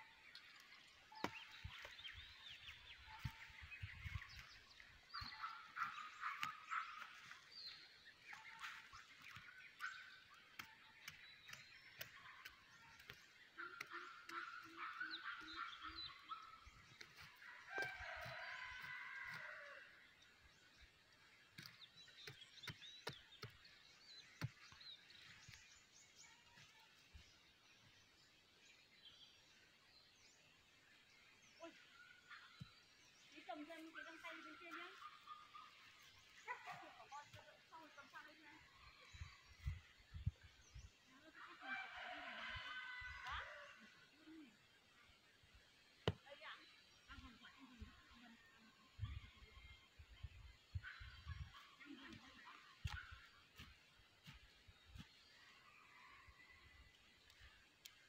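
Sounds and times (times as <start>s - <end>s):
faint birds chirping: 0.0s - 58.0s.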